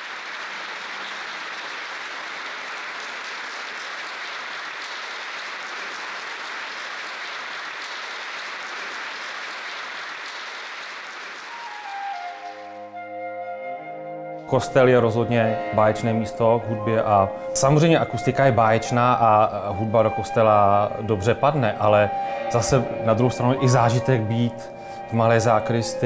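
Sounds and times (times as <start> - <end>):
audience applauding: 0.0 - 12.9
held musical notes: 11.5 - 26.0.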